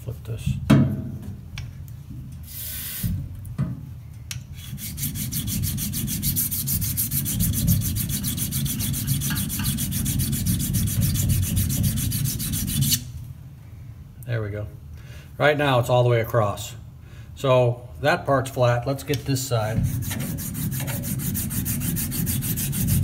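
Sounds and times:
razor rasping on diamond plate: 0:04.6 - 0:13.1, 0:19.8 - 0:23.0.

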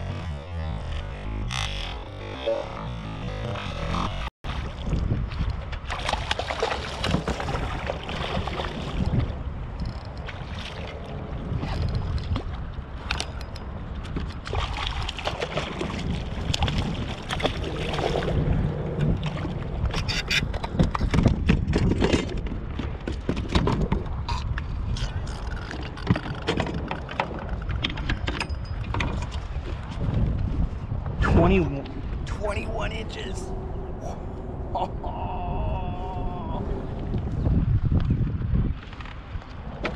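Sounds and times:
wind buffeting microphone: 0:00.0 - 0:39.9
water sloshing against kayak hull: 0:02.1 - 0:13.1, 0:13.9 - 0:30.8
gear knocking and rattling: 0:25.0 - 0:29.4.

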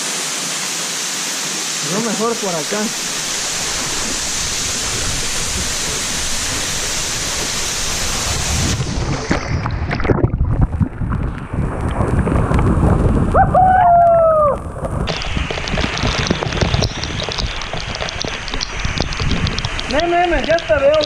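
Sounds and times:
waterfall hissing: 0:00.0 - 0:10.1, 0:11.5 - 0:21.0
underwater rumble: 0:02.9 - 0:21.0.

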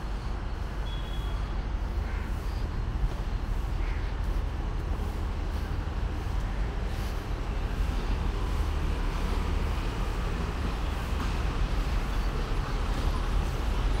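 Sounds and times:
traffic noise with low rumble: 0:00.0 - 0:14.0.

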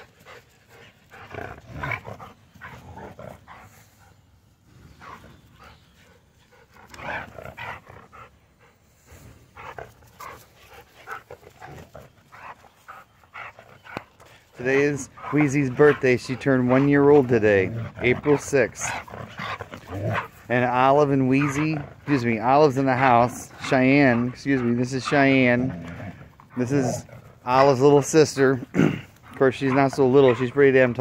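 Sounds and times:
dogs growling in play: 0:00.0 - 0:31.0
dogs panting: 0:00.0 - 0:31.0.

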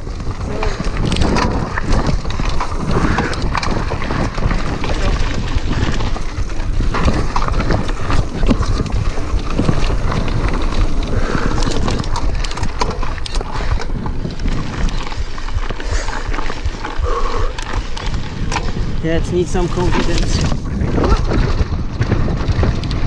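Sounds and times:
bike rattling over bumps: 0:00.0 - 0:23.0
bike tyres crunching over gravel: 0:00.0 - 0:23.0
wind rumble on microphone: 0:00.0 - 0:23.0.

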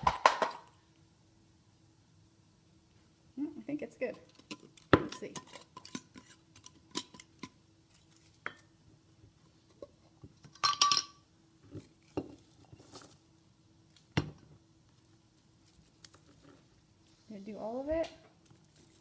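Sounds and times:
glass jar clinking: 0:10.5 - 0:11.2.

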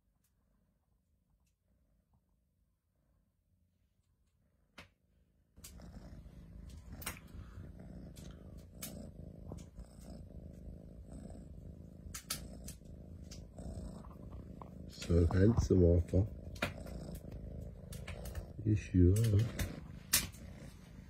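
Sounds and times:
cat purring: 0:05.2 - 0:21.0.

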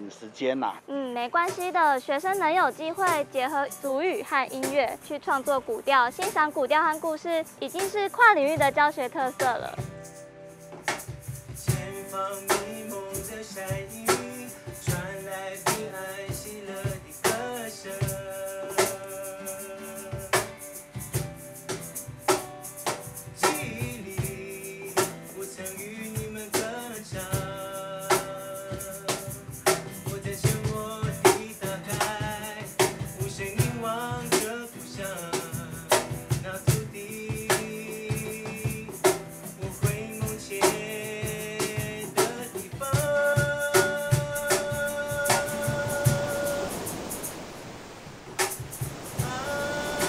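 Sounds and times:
acoustic guitar: 0:00.0 - 0:50.0
hand percussion beat: 0:01.2 - 0:47.4, 0:48.4 - 0:50.0
young men singing together: 0:11.7 - 0:20.5, 0:23.4 - 0:29.4, 0:30.0 - 0:47.1, 0:49.0 - 0:50.0.

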